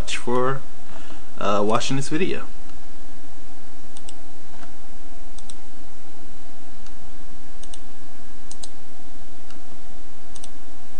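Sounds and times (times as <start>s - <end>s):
microphone hiss: 0.0s - 10.9s
computer mouse clicking: 4.0s - 4.7s, 5.4s - 5.6s, 7.6s - 7.8s, 8.5s - 8.8s, 10.4s - 10.6s.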